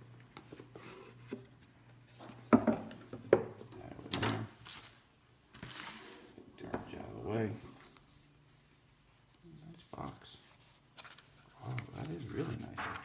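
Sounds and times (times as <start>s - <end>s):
knocks on wooden table: 2.5s - 3.5s.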